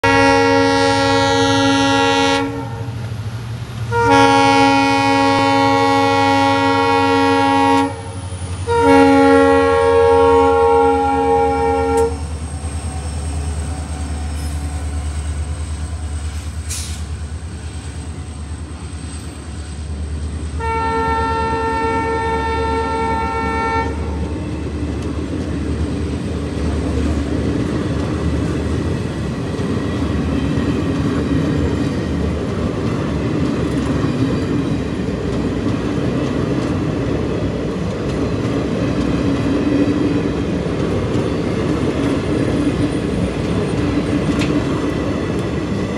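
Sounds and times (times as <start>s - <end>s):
train horn blast: 0.0s - 3.0s, 3.9s - 12.3s, 20.5s - 24.2s
diesel locomotive engine hum: 0.0s - 45.9s
train wheels on rails: 0.0s - 45.9s.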